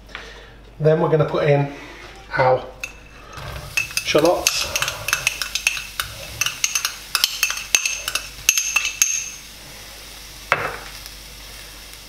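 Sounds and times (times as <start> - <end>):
metal utensil clinking on bowl: 2.8 - 9.5.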